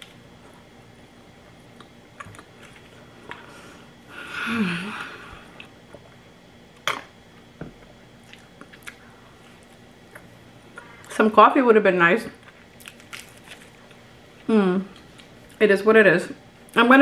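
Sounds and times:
breathy hum through mouthful: 3.1 - 5.7
person chewing food: 8.2 - 10.8.

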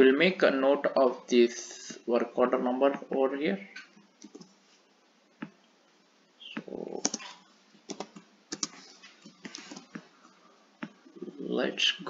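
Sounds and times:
computer keyboard keystrokes: 4.2 - 4.5, 7.0 - 7.2, 7.9 - 8.8, 9.4 - 10.0.

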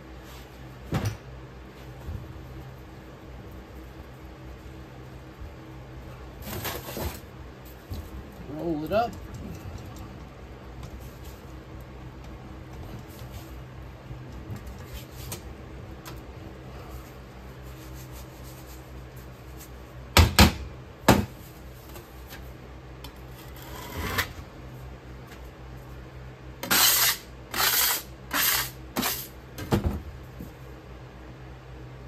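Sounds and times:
metal blade scraping sand: 26.6 - 29.3.

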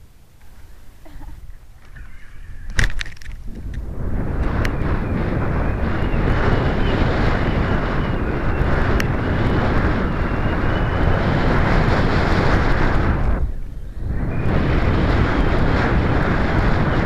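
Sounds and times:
faint wavering high whine: 0.0 - 17.0
wind buffeting microphone: 0.0 - 17.0.

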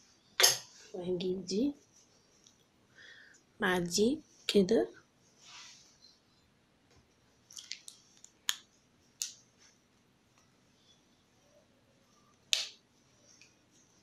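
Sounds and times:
sharp snaps: 12.5 - 12.8.

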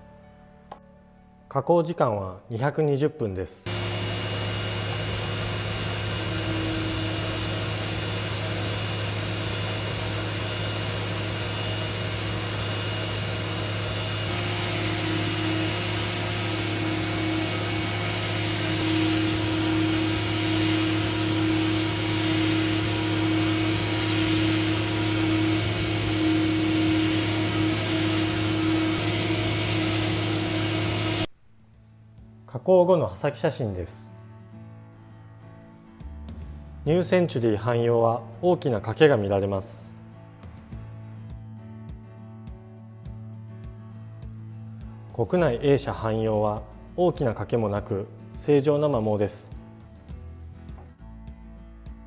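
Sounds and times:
machine spindle hum and whine: 3.7 - 31.3.

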